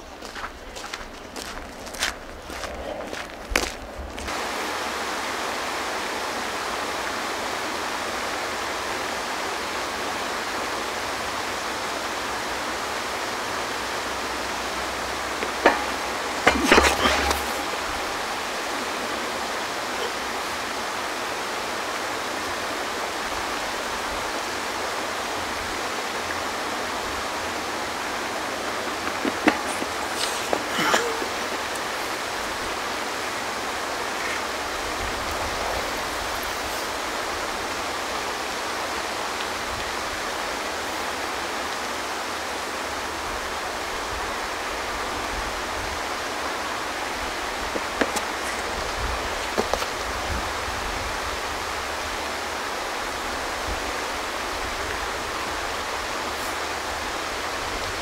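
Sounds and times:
rustle: 0:00.0 - 0:58.0
short knocks: 0:15.4 - 0:17.9.

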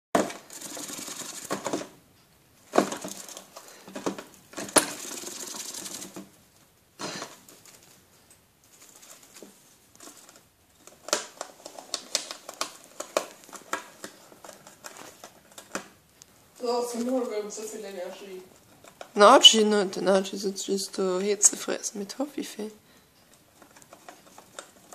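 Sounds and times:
gerbil gnawing cardboard: 0:00.2 - 0:02.0, 0:02.6 - 0:06.4, 0:08.7 - 0:16.1, 0:23.3 - 0:24.9.

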